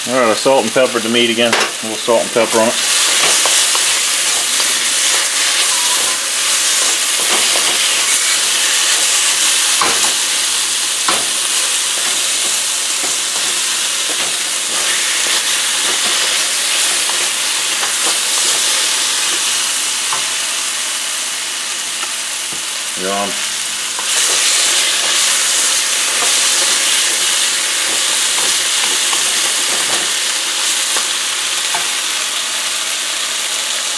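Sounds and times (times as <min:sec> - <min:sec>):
meat sizzling in a hot wok: 0:00.0 - 0:33.9
wooden spoon scraping and knocking pan: 0:11.0 - 0:19.5, 0:24.0 - 0:30.2.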